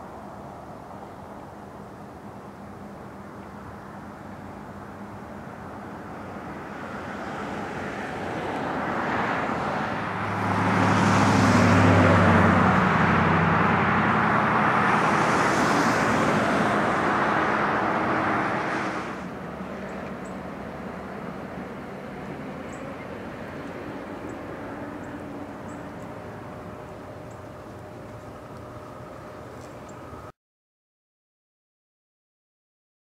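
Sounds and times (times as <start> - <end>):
vehicle passing by: 4.9 - 30.3.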